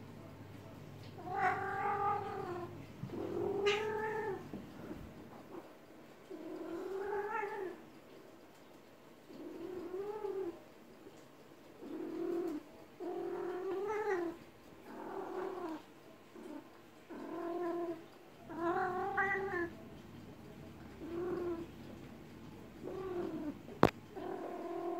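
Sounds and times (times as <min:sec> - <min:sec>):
cat yowling: 0:01.2 - 0:02.7, 0:03.4 - 0:04.4.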